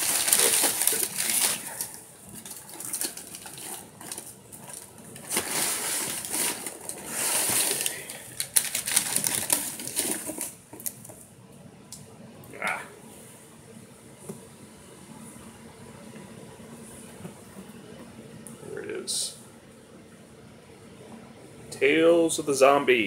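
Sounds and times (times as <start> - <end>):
packing paper rustling: 0.0 - 11.2.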